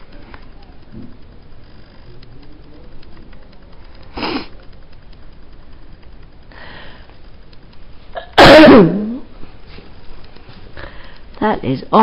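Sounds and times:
person sniffing: 4.1s - 4.5s.

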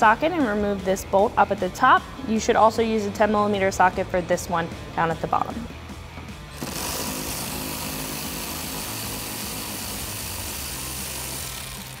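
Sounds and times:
cordless power tool whirring: 6.5s - 12.0s.

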